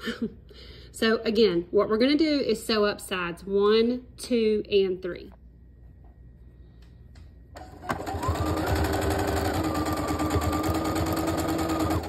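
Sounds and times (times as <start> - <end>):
sewing machine sewing: 7.6 - 12.0.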